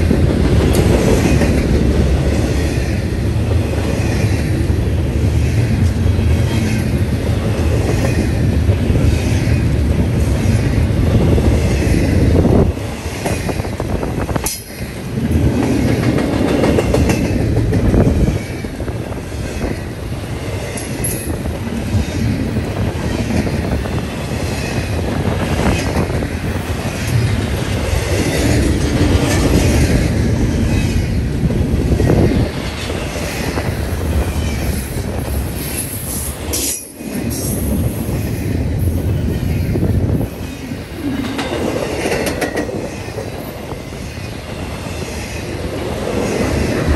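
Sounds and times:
steel wheels rumbling on rail: 0.0s - 46.9s
wheels clacking over rail joints: 12.7s - 18.9s, 41.1s - 46.9s.

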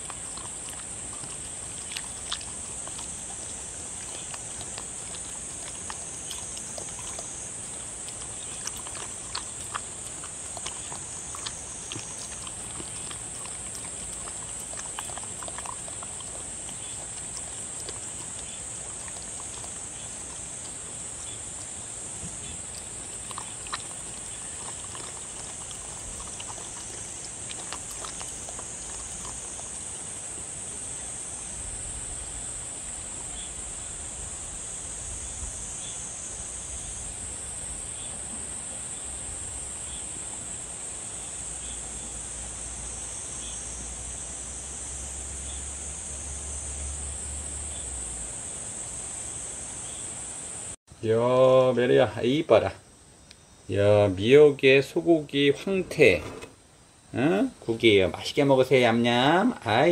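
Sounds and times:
dog lapping and chewing: 0.0s - 31.6s.

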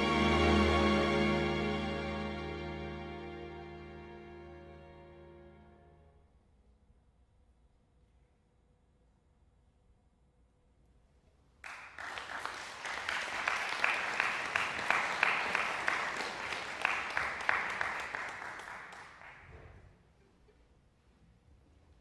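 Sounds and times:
audience applause: 11.6s - 19.5s.

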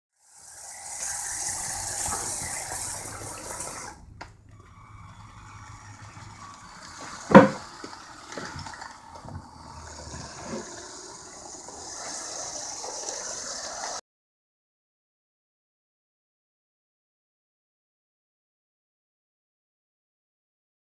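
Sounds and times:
toy train motors and wheels rushing: 0.2s - 14.0s.

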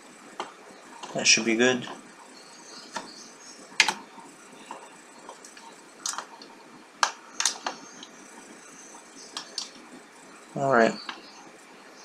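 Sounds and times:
faint background hiss: 0.0s - 12.0s
mouse and keyboard clicking: 9.3s - 9.8s.

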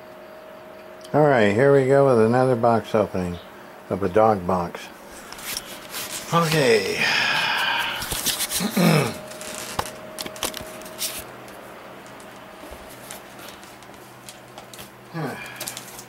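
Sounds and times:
faint steady hum: 0.0s - 16.0s
rustling and handling noise: 5.0s - 16.0s.

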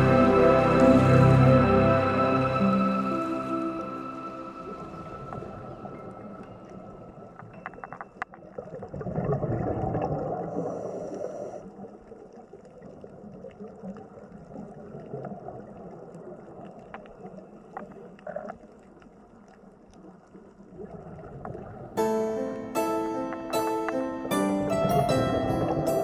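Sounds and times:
water splashing and gurgling: 0.0s - 22.2s, 24.6s - 26.0s
small clicks and drips: 7.4s - 10.4s, 11.6s - 21.8s.

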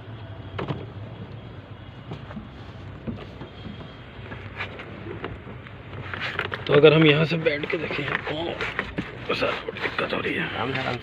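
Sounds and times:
steady low hum: 0.0s - 6.6s
knocks and clunks in truck cab: 2.0s - 4.5s.

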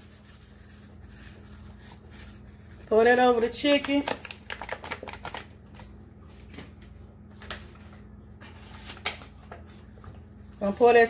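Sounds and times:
foil packet crinkling: 0.5s - 5.9s.

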